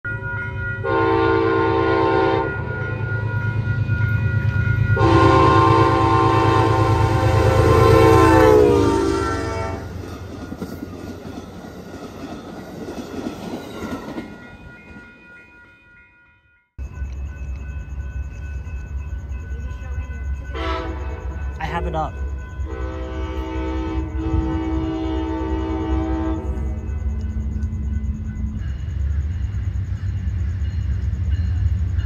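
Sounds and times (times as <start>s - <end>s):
train cars rolling on rails: 0.1s - 16.0s, 16.8s - 32.0s
locomotive horn: 0.8s - 3.0s, 5.0s - 10.0s, 20.5s - 21.5s, 22.6s - 27.0s.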